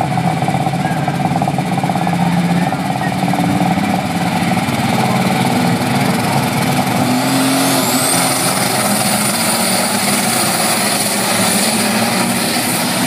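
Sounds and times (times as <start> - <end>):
high whine: 0.0 - 13.0
tractor engine at full power: 0.0 - 13.0.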